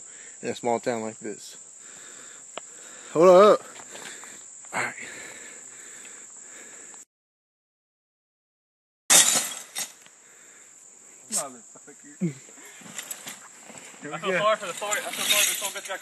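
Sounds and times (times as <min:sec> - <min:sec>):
crickets chirring: 0:00.0 - 0:07.1, 0:09.1 - 0:16.0
glass breaking: 0:09.1 - 0:10.0, 0:14.6 - 0:16.0.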